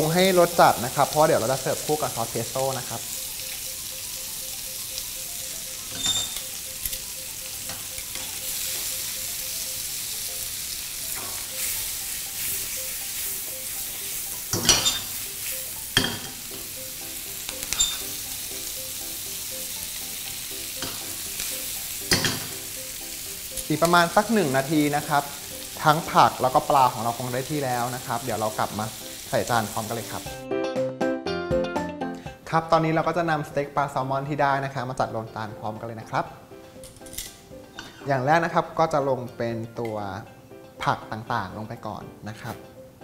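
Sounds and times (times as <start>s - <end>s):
food sizzling in a frying pan: 0.0s - 30.4s
pan and utensil clanking: 5.8s - 9.2s, 11.1s - 11.8s, 13.8s - 16.6s, 17.4s - 18.2s, 20.7s - 22.8s, 36.8s - 38.2s.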